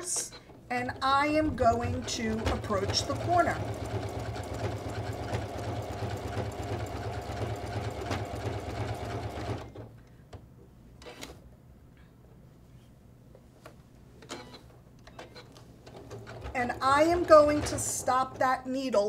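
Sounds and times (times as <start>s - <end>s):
sewing machine stitching: 0.0s - 9.9s, 14.3s - 18.9s.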